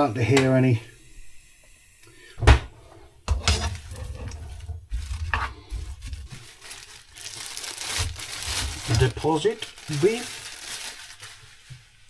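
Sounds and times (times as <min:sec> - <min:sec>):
spatula scraping onions in pan: 0:03.3 - 0:06.4.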